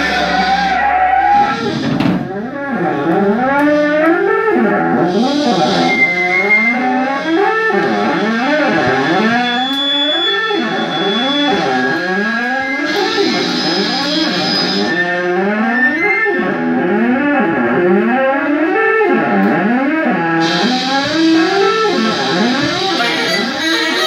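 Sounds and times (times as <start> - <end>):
electric guitar bending notes: 0.0 - 24.0
live band music: 20.4 - 24.0.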